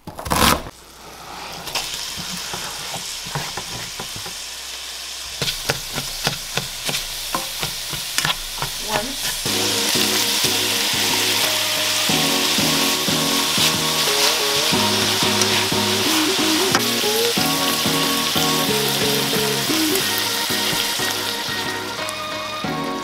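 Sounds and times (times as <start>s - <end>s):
sausage and onion sizzling: 0.0s - 23.0s
spatula scraping and tapping pan: 1.8s - 4.4s, 5.4s - 9.5s.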